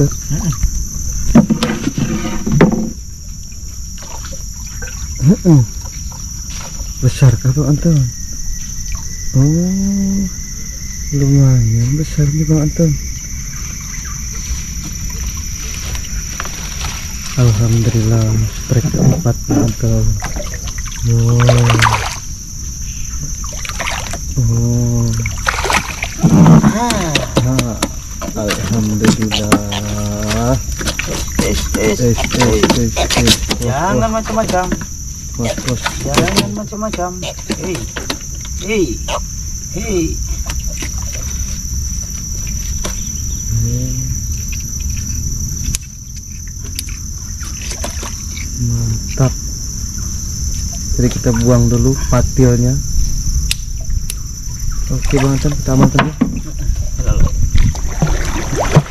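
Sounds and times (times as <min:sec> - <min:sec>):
water splashing against boat: 0:00.0 - 0:07.0, 0:13.8 - 0:22.4, 0:23.1 - 0:38.8, 0:39.8 - 0:43.1, 0:46.5 - 0:49.4, 0:54.6 - 0:58.9
high-pitched insect chorus: 0:00.0 - 0:58.9
low steady hum: 0:00.0 - 0:58.9.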